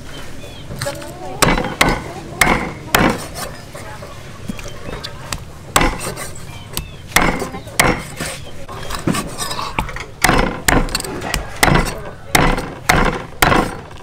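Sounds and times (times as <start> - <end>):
cleaver chopping on wooden block: 1.4 - 3.5, 5.8 - 6.2, 6.8 - 8.3, 9.1 - 14.0.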